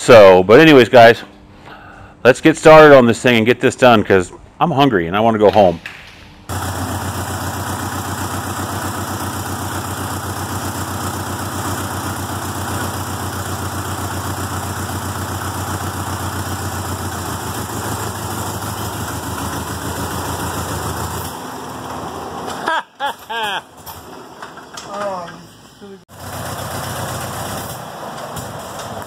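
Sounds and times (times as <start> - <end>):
tractor engine running: 6.5 - 22.6, 26.1 - 29.0.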